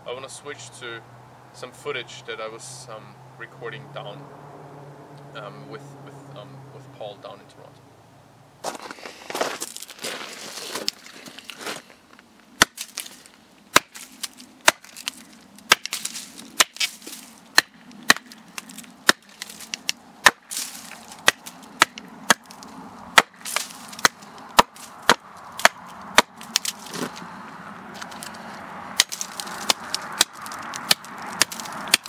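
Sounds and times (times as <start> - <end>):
axe chopping wood: 12.6 - 27.2, 29.0 - 32.0.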